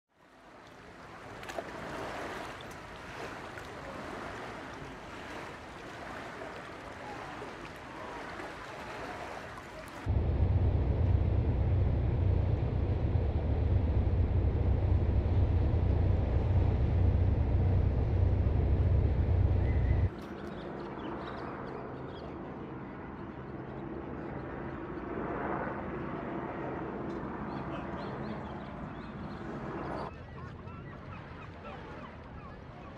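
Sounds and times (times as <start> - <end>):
wind: 0.1 - 32.9
small waves washing: 0.2 - 20.1
deep drone of ferry engine: 10.0 - 24.9.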